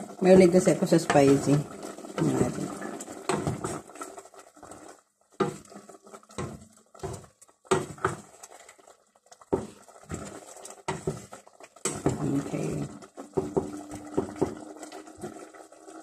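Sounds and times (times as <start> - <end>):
spatula scraping a metal pot: 9.6 - 12.8.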